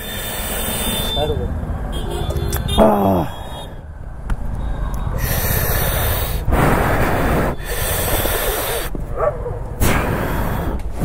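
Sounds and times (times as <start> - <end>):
person breathing heavily: 0.0 - 1.1, 5.0 - 9.1, 9.8 - 11.0
steady low rumble: 3.8 - 11.0.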